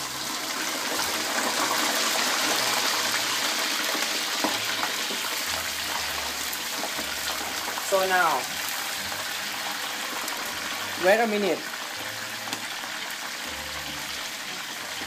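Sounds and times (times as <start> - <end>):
shrimp sizzling in hot oil: 0.0 - 15.0.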